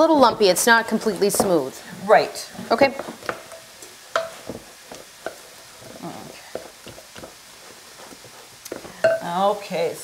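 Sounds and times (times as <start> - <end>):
spoon stirring dough: 0.0 - 9.7.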